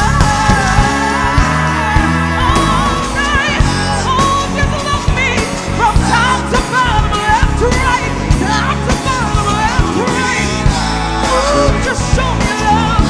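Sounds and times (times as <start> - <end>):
live band playing: 0.0 - 13.0
woman singing: 0.0 - 13.0.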